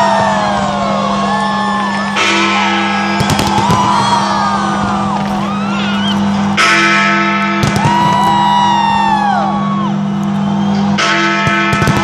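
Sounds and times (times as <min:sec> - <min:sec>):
firework bangs: 0:03.1 - 0:05.8, 0:07.5 - 0:09.0, 0:11.4 - 0:12.0.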